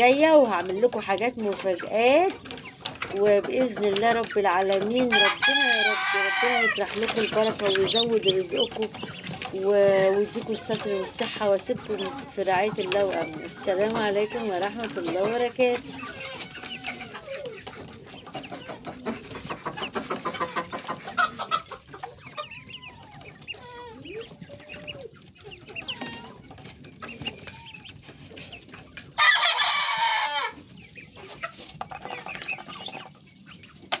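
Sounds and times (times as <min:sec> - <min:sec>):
chickens clucking: 0:00.0 - 0:34.0
rooster crowing: 0:05.1 - 0:06.8, 0:29.2 - 0:30.6.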